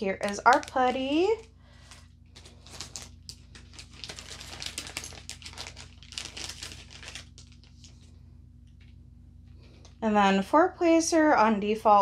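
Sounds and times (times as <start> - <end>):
plastic packaging crinkling: 0.0 - 8.1.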